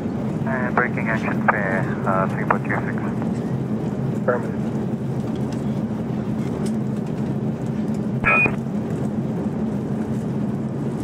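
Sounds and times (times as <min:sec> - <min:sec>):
airplane cabin drone: 0:00.0 - 0:11.0
short high beep: 0:08.2 - 0:08.6.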